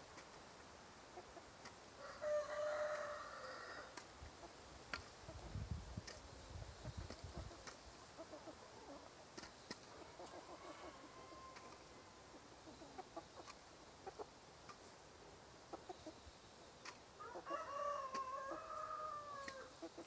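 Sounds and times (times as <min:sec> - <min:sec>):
chickens clucking: 0:00.0 - 0:20.0
rooster crowing: 0:02.0 - 0:03.9, 0:10.4 - 0:11.7, 0:17.2 - 0:19.7.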